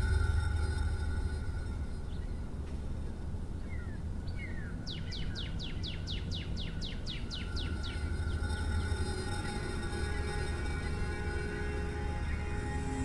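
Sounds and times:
steady low hum: 0.0 - 13.0
songbird whistling: 3.6 - 13.0.

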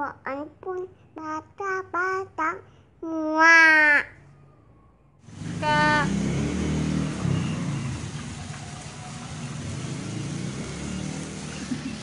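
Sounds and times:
vehicle engine running: 5.3 - 12.0.

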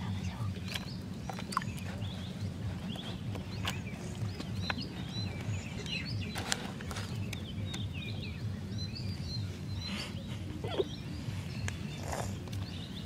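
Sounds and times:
low pulsing hum: 0.0 - 13.0
small birds chirping: 0.0 - 13.0.

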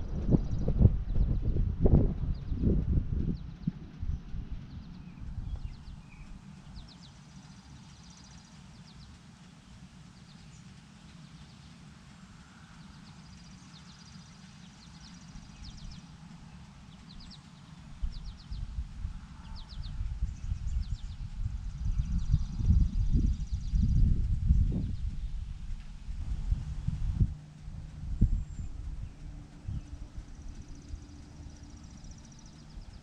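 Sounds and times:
wind buffeting microphone: 0.0 - 7.6, 14.9 - 33.0
small birds chirping: 2.2 - 33.0.

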